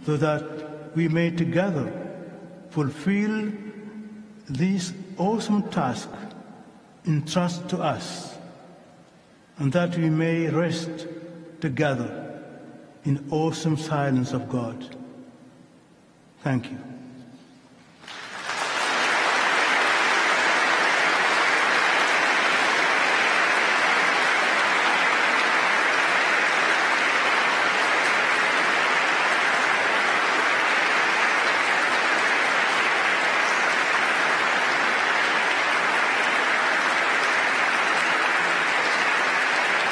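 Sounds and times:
audience applauding: 18.0 - 39.9.

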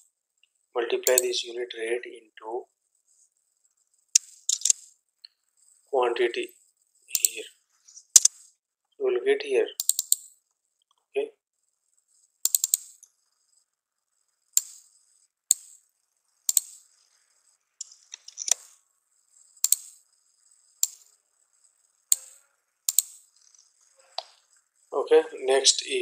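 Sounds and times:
mouse and keyboard clicking: 1.0 - 1.3, 4.2 - 5.4, 7.1 - 8.5, 9.7 - 10.4, 12.4 - 13.4, 14.5 - 17.1, 17.8 - 18.8, 19.5 - 24.7.

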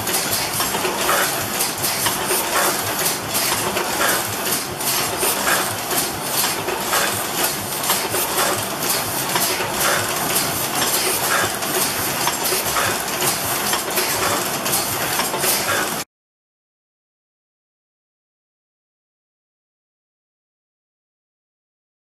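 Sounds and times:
printing press clattering: 0.0 - 16.0.

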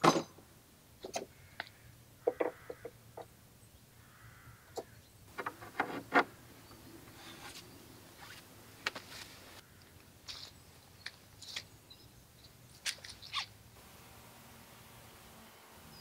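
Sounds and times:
wooden boards knocking: 2.3 - 2.8.

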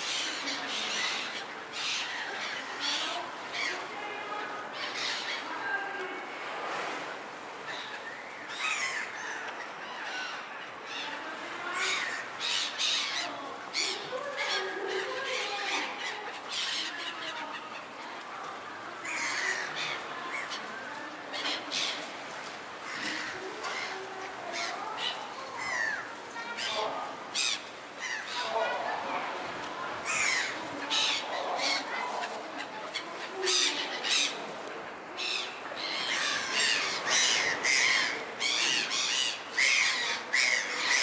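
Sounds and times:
seagulls squawking: 0.0 - 3.9, 19.0 - 20.8, 22.8 - 28.9, 30.0 - 34.5, 35.2 - 41.0.

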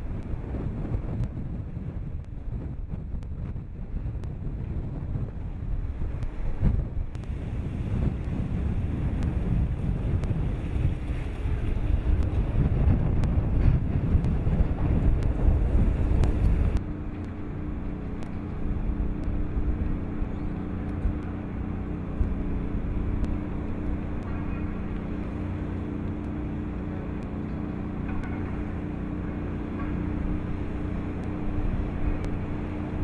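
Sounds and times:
boat engine drone: 0.0 - 33.0
constant hum: 0.0 - 33.0
wind buffeting microphone: 0.0 - 33.0
rushing water: 7.2 - 16.8.

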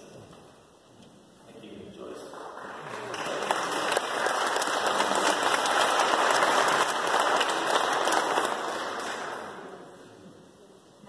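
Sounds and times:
audience applauding: 2.1 - 10.0.

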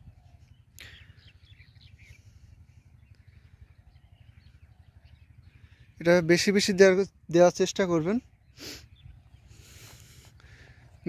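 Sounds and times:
faint bird chirps: 0.0 - 6.8
steady low rumble: 0.0 - 11.0.

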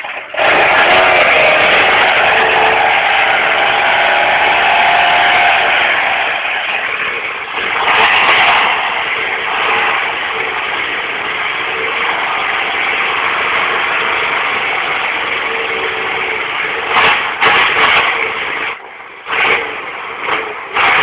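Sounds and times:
vehicle engine idling: 0.0 - 21.0.

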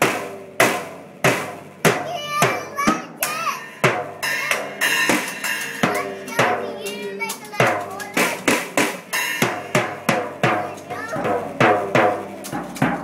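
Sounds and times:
drum strikes: 0.0 - 13.0
cymbal ringing: 3.2 - 7.0.

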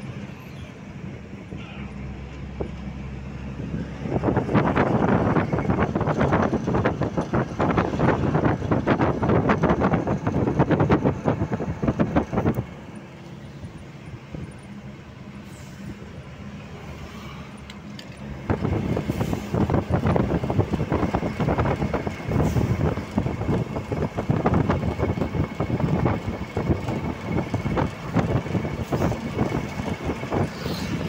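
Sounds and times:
road noise: 0.0 - 31.0
truck engine drone: 0.0 - 31.0
wind buffeting microphone: 2.4 - 13.0, 18.3 - 31.0.

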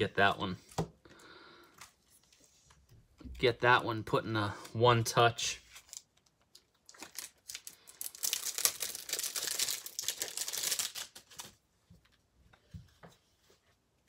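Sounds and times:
thin plastic crinkling: 5.6 - 11.6.

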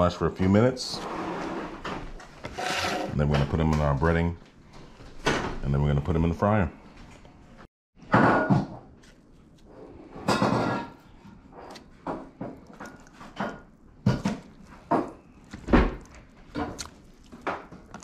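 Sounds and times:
rustling scrapes: 0.8 - 3.2.

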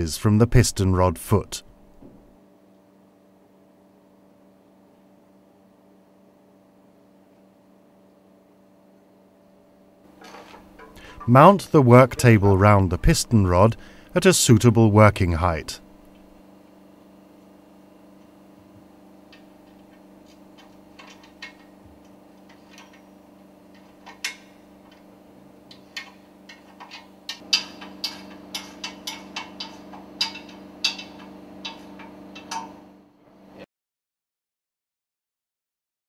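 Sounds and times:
steady low hum: 0.0 - 33.7
metallic clicks and knocks: 19.3 - 23.1, 23.7 - 32.8.

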